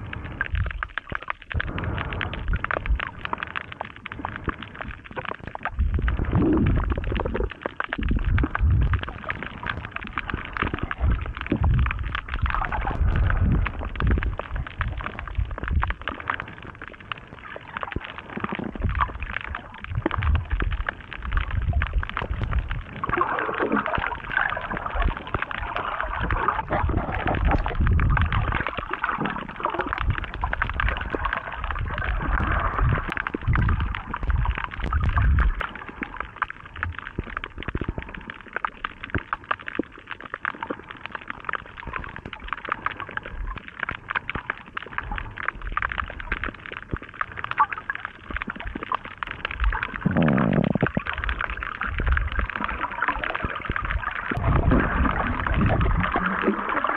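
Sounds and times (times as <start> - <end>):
faint crackling clicks: 0.0 - 56.9
muffled underwater water surges: 0.0 - 56.9.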